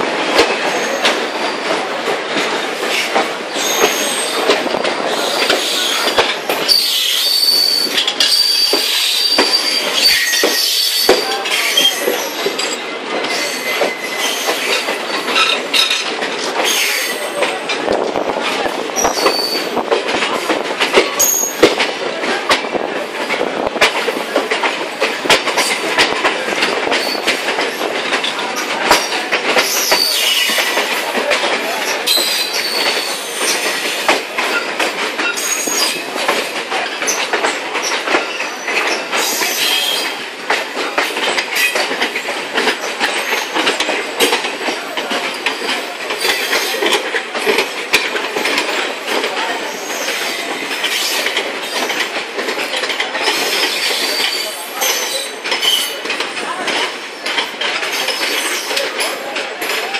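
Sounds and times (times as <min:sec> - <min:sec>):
clicking over rail joints: 0:00.0 - 0:59.9
passing train: 0:00.0 - 0:59.9
train wheel and track noise: 0:00.0 - 0:59.9
high wheel squeals: 0:03.6 - 0:04.4, 0:06.7 - 0:14.8.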